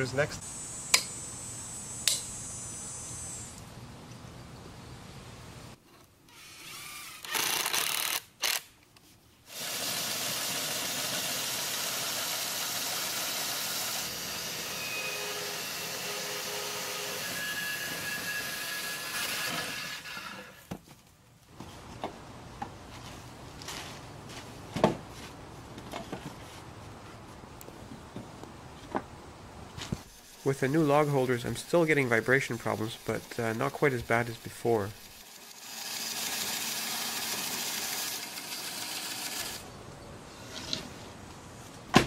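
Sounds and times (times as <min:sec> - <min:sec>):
cordless drill driving screw: 0:06.3 - 0:08.6
band sawmill cutting log: 0:09.5 - 0:20.7, 0:30.0 - 0:39.7.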